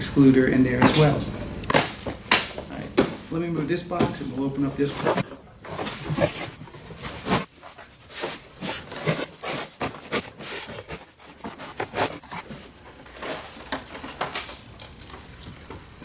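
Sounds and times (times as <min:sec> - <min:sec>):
cardboard scraping and rustling: 0:02.1 - 0:14.7.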